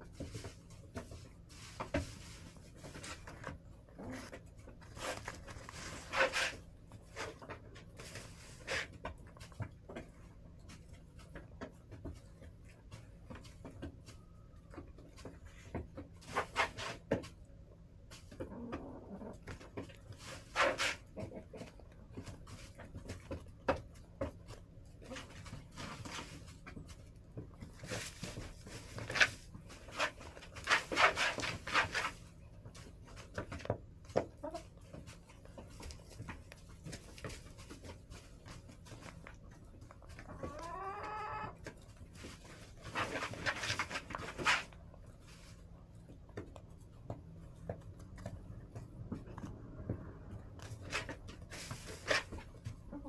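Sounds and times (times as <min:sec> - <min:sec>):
hens scratching and pecking: 0:00.0 - 0:53.0
hens clucking softly: 0:18.2 - 0:23.0, 0:34.2 - 0:37.9, 0:39.1 - 0:42.2, 0:51.8 - 0:53.0.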